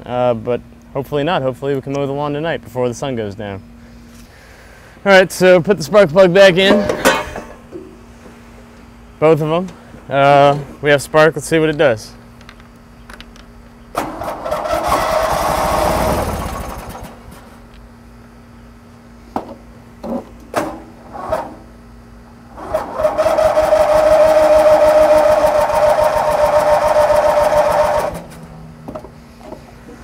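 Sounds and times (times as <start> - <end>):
engine cranking with starter whine: 13.9 - 17.7, 22.4 - 28.9.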